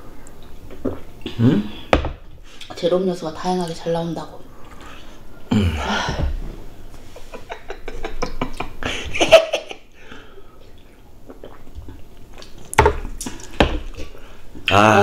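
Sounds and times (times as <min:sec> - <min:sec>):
gulping and swallowing: 0:11.2 - 0:14.1.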